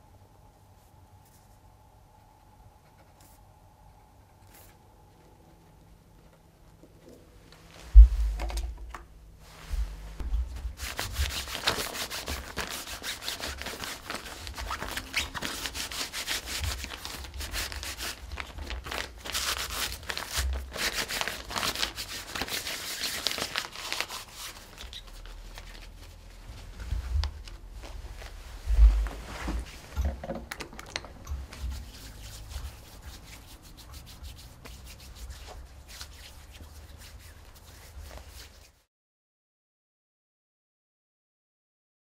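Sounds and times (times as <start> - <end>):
wipe rubbing on fabric: 31.5 - 38.9.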